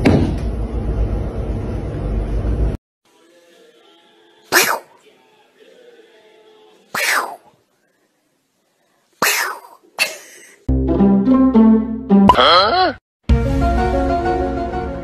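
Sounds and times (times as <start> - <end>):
cat spitting: 4.5 - 4.9, 7.0 - 7.5, 9.2 - 10.2.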